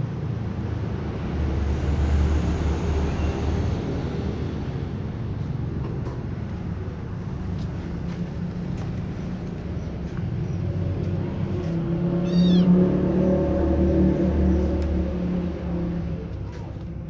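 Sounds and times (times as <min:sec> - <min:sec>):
kitten meowing: 0:12.2 - 0:12.8.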